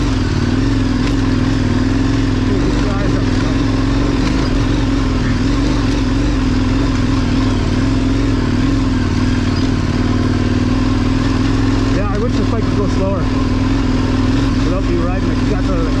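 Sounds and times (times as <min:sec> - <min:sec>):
continuous rushing noise: 0:00.0 - 0:16.0
motorcycle engine running: 0:00.0 - 0:16.0.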